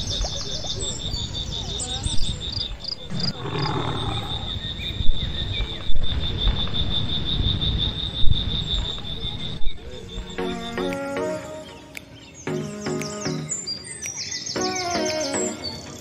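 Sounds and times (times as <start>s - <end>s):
murmur of voices: 0.0s - 6.0s, 7.7s - 16.0s
bird chirps: 0.0s - 16.0s
low wind rumble: 1.0s - 10.4s.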